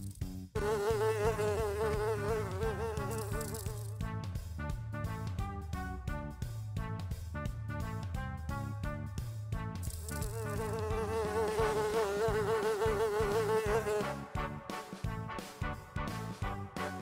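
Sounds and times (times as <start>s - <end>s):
housefly buzzing: 0.6s - 4.0s, 9.9s - 14.9s
light background music: 0.6s - 17.0s.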